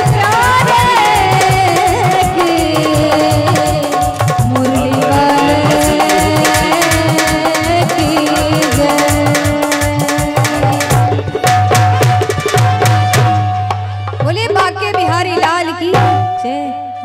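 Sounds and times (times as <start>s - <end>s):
tabla and dholak rhythm: 0.0s - 17.0s
held keyboard melody notes: 2.2s - 10.1s.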